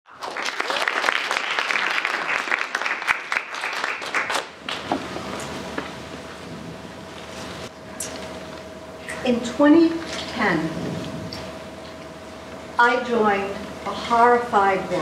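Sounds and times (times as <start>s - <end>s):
audience applauding: 0.1s - 4.9s
faint steady hum: 0.1s - 15.0s.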